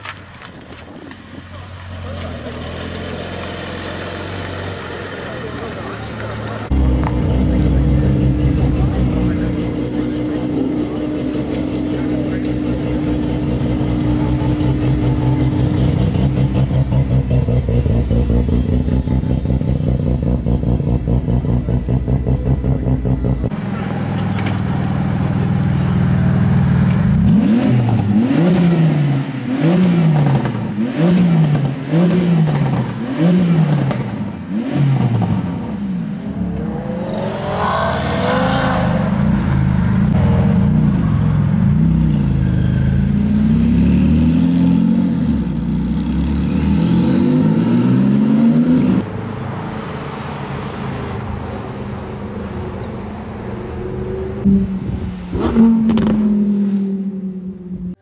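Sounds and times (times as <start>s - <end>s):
car engine idling: 0.7s - 23.6s
engine revving: 2.0s - 49.1s, 53.6s - 58.0s.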